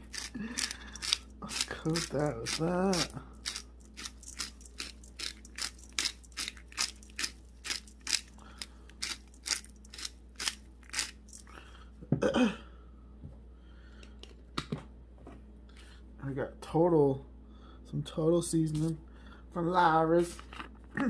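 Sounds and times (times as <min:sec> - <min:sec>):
spice grinder crunching clicks: 0:00.0 - 0:11.5.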